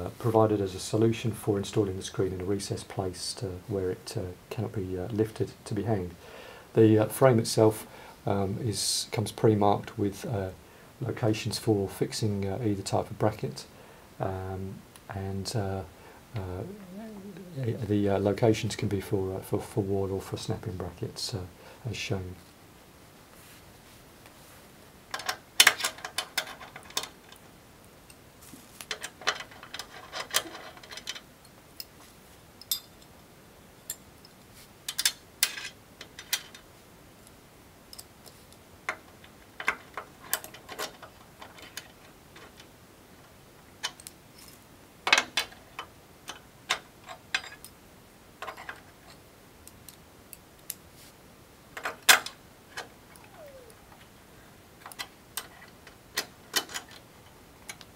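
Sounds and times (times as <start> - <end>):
metallic clinks: 32.6 - 33.1.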